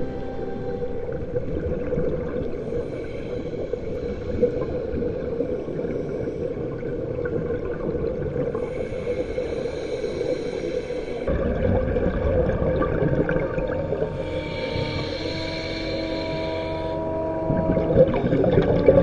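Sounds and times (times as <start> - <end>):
low hum: 0.0 - 19.0
muffled underwater noise: 0.0 - 19.0.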